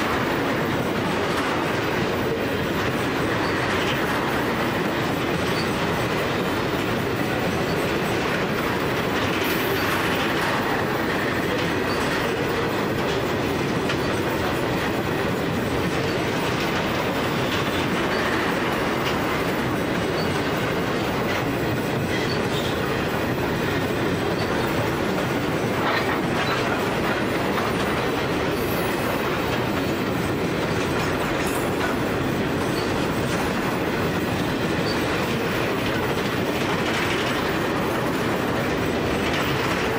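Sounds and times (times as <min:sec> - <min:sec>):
train wheels clattering over rail joints: 0:00.0 - 0:39.9.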